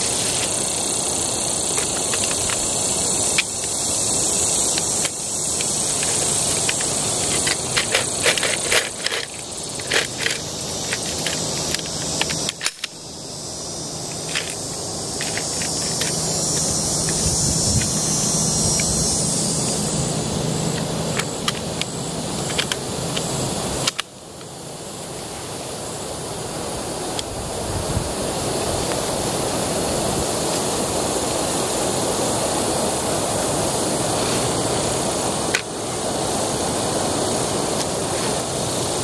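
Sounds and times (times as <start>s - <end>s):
high background hiss: 0.0s - 39.0s
machine gun metallic clicks and rattles: 4.7s - 13.0s, 14.1s - 14.6s, 15.2s - 17.9s, 20.7s - 23.2s.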